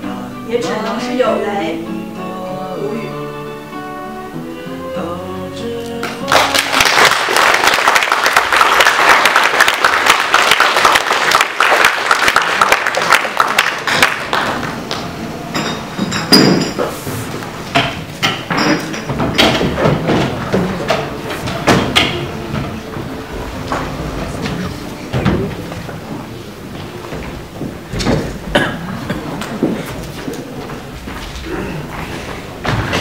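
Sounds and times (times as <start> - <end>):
quiet music: 0.0 - 7.2, 14.3 - 33.0
audience applause: 6.2 - 15.2.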